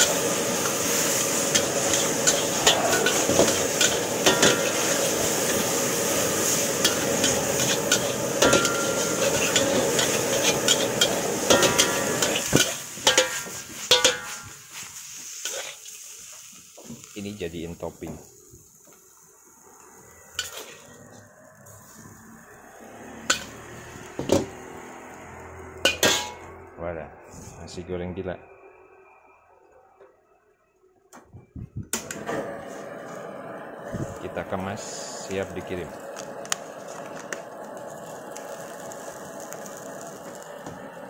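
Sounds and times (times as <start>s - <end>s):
metal spatula clinking on cookware: 1.5s - 4.9s, 6.8s - 14.5s, 25.8s - 26.4s.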